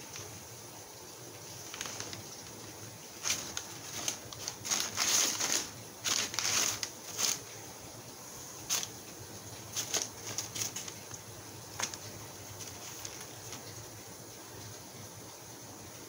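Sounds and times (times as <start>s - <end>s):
packing paper crinkling: 0.0s - 0.4s, 1.4s - 7.7s, 8.5s - 13.9s.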